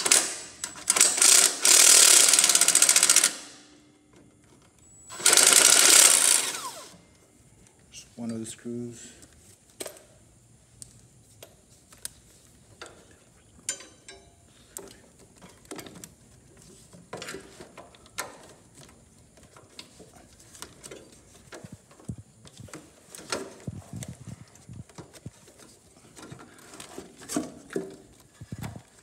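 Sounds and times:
hand tools clicking on metal: 0:13.6 - 0:16.2.

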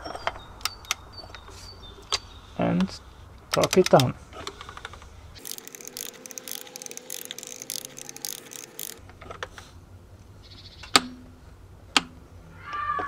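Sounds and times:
sharp loud wrench clicks: 0:05.4 - 0:09.0
torque wrench ratchet clicking: 0:05.4 - 0:09.0.

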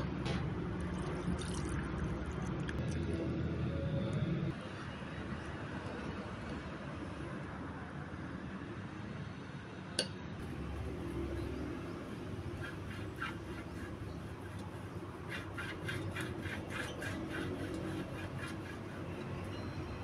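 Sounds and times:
pastry brush scraping baking pan: 0:10.5 - 0:20.0.

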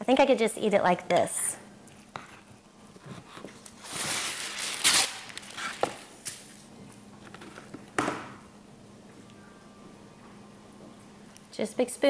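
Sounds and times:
wax paper tearing: 0:03.8 - 0:05.8.

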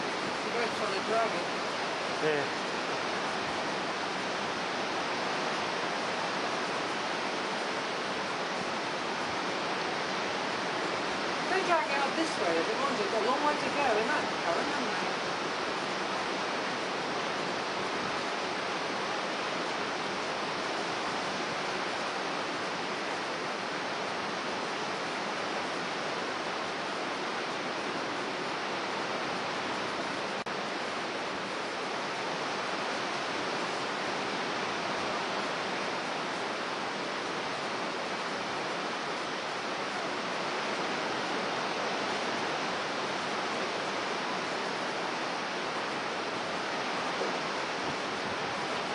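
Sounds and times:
storm surf breaking: 0:00.0 - 0:48.9.

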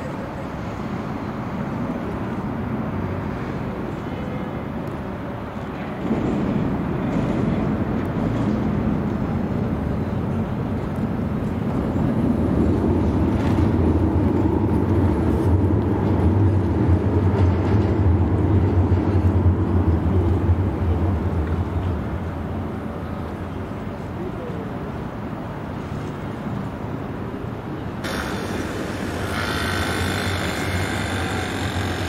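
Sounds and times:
tram rumbling past: 0:00.0 - 0:32.0
car traffic: 0:25.2 - 0:32.0.

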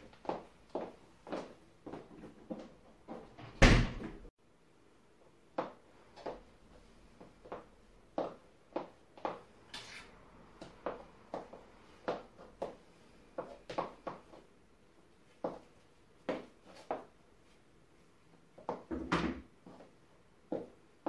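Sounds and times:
door banging shut: 0:03.4 - 0:04.2
high heels clicking on laminate floor: 0:15.4 - 0:17.1, 0:20.5 - 0:20.8.

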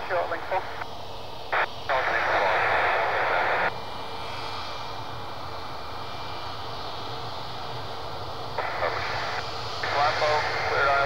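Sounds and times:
radio hiss: 0:00.0 - 0:05.5, 0:08.5 - 0:11.0
jet engines humming: 0:00.0 - 0:11.0.

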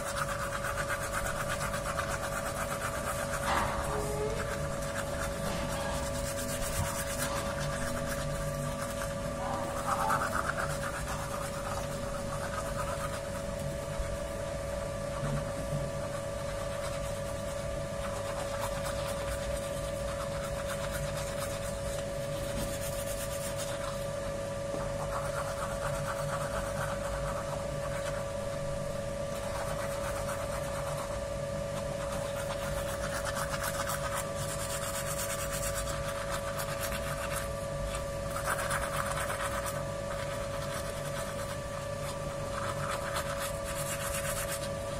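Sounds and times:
toothbrush scrubbing teeth: 0:00.0 - 0:24.2, 0:24.8 - 0:28.6, 0:29.2 - 0:44.9
steady hum: 0:00.0 - 0:44.9.

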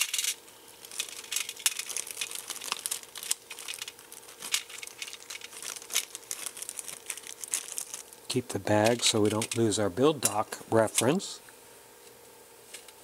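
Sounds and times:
plastic bag crinkling: 0:00.0 - 0:09.8.

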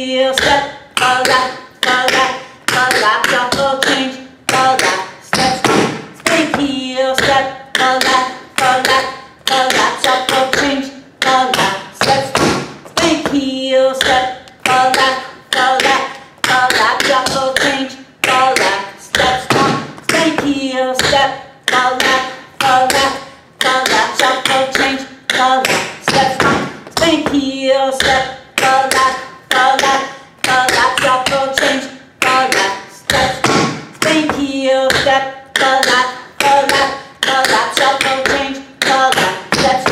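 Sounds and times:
tap shoes striking hard floor: 0:01.2 - 0:06.6, 0:11.5 - 0:13.4, 0:15.8 - 0:23.0, 0:23.6 - 0:27.4, 0:29.8 - 0:36.0.

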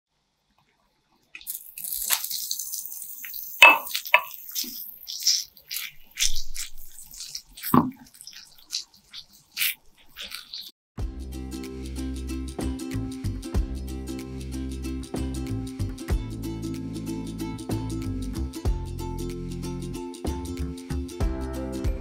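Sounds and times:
meat sizzling in hot oil: 0:01.4 - 0:10.7
chopsticks tapping steel bowl: 0:03.6 - 0:04.8.

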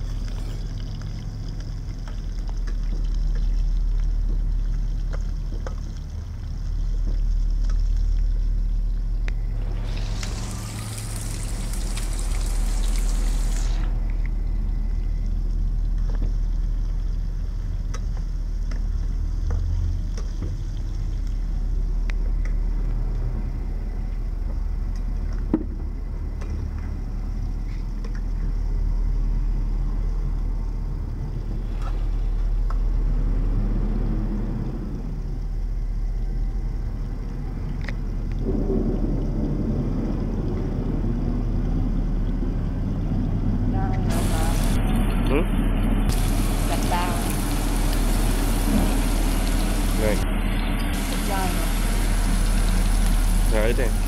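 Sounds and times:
chicken frying in oil: 0:00.0 - 0:54.0
low rumble: 0:00.0 - 0:54.0
loud hiss: 0:09.6 - 0:14.0, 0:44.1 - 0:44.9, 0:46.1 - 0:50.3.

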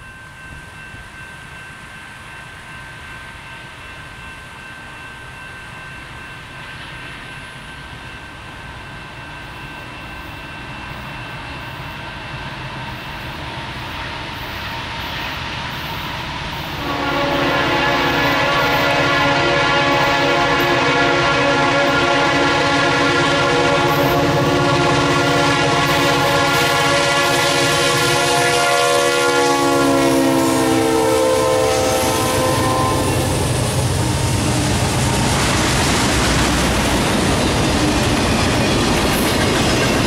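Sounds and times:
train air horn chord: 0:16.8 - 0:34.4.

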